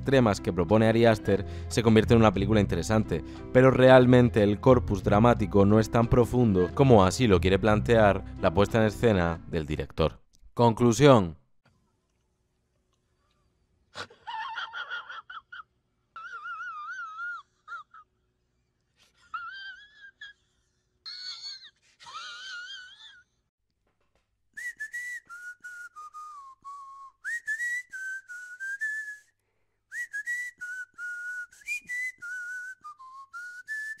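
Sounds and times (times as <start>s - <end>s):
person whistling a melody: 24.6s - 34.0s.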